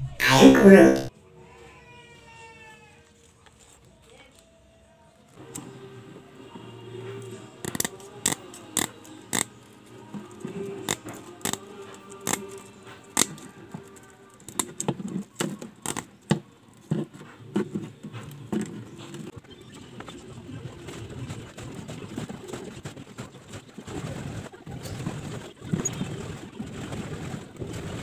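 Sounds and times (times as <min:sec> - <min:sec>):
scissors snipping wire mesh: 0:07.6 - 0:09.5, 0:10.3 - 0:14.8.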